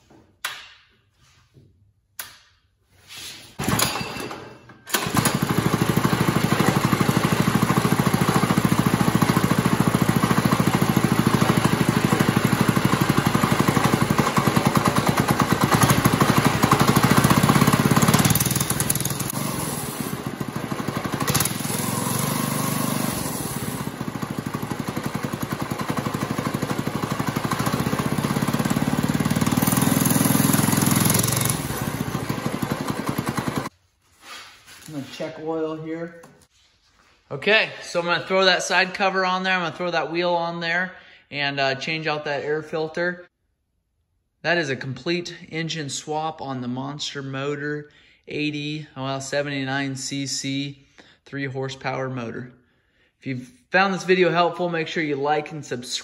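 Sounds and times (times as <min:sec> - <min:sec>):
small engine running: 0:04.9 - 0:33.7.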